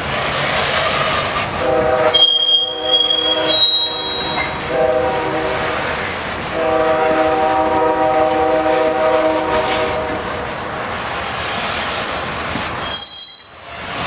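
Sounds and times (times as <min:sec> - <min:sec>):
freight train cars rumbling: 0:00.0 - 0:14.0
locomotive air horn: 0:01.5 - 0:05.9, 0:06.5 - 0:10.4, 0:12.9 - 0:14.0.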